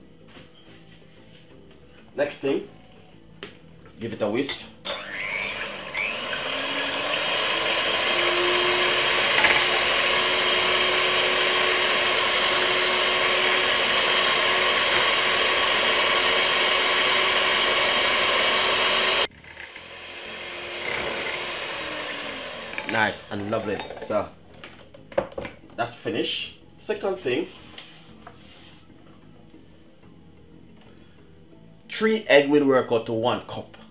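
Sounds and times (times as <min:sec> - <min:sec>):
electric hand mixer whirring: 0:04.8 - 0:24.0.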